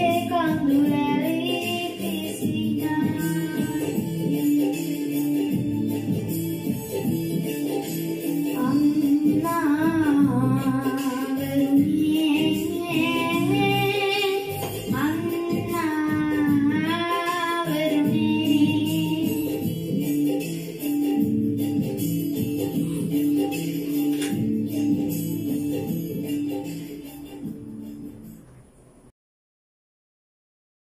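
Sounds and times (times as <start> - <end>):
boy singing into microphone: 0.0 - 5.6, 8.5 - 19.9
backing music: 0.0 - 29.1.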